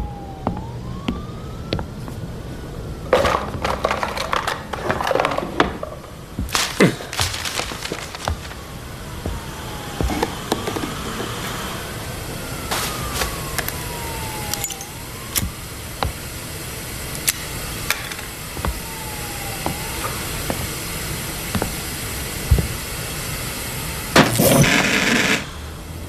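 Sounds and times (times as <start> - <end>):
emergency siren wailing: 0.0 - 26.0
traffic hum: 0.0 - 26.0
loud rough noise: 3.2 - 13.4.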